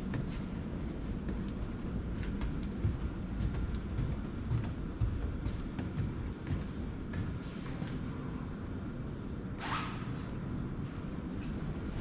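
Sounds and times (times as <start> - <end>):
steady low rumble: 0.0 - 9.4
footsteps on hard stairs: 1.0 - 8.0.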